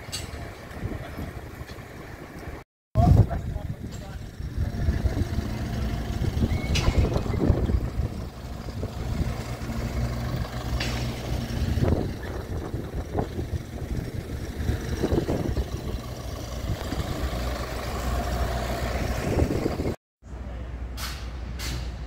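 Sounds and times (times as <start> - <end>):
large engine idling: 0.3 - 20.0
knocks and clatter: 10.5 - 13.6.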